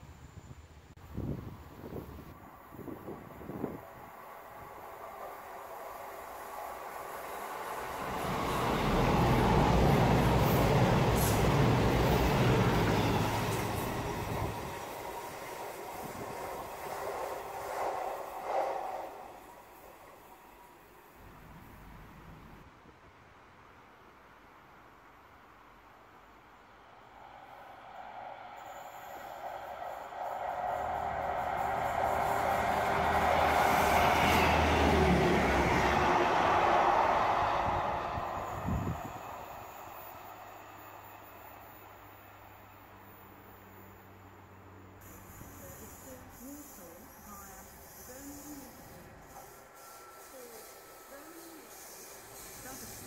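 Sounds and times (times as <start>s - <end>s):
diesel train passing at speed: 0.0s - 53.0s
distant diesel train: 0.0s - 53.0s.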